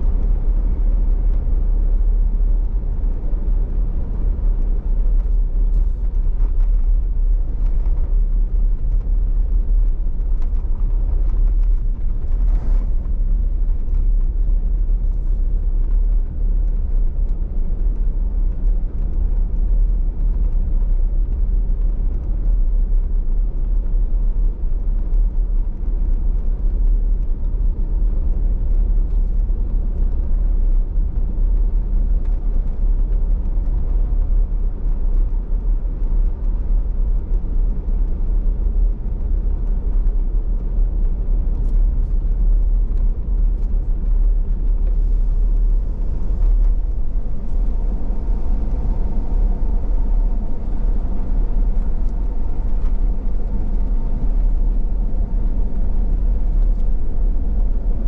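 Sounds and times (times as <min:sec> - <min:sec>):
car road and engine rumble: 0:00.0 - 0:58.0
faint high whine: 0:44.8 - 0:58.0.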